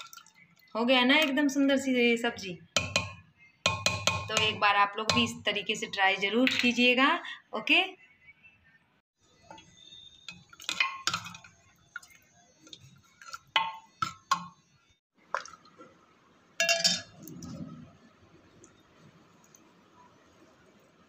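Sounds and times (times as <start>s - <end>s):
metal spoon clinking in pot: 10.3s - 11.5s, 16.6s - 17.2s.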